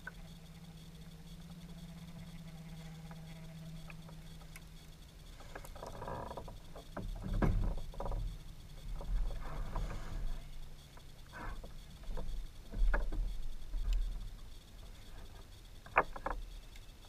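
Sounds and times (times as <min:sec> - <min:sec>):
low steady hum: 0:00.0 - 0:17.0
gear knocking against kayak hull: 0:05.4 - 0:10.0.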